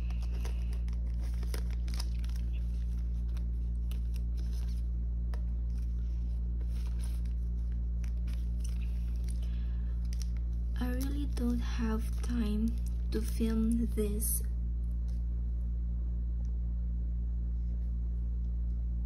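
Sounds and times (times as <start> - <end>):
plastic sleeves rustling: 0.0 - 14.0
low electrical hum: 0.0 - 19.0.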